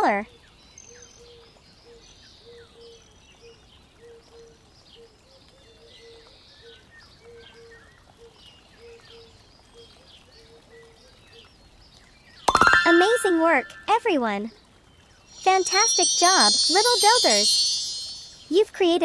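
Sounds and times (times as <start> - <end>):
faint birds chirping: 14.4 - 18.6.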